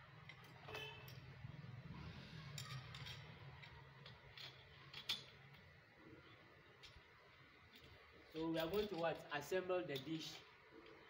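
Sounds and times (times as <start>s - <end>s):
metal bracket clicks and clinks: 2.4s - 5.7s, 7.7s - 9.3s.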